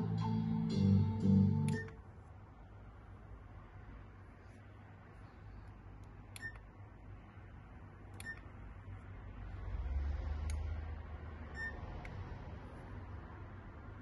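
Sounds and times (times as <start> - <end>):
short electronic beeps: 11.6 - 11.8.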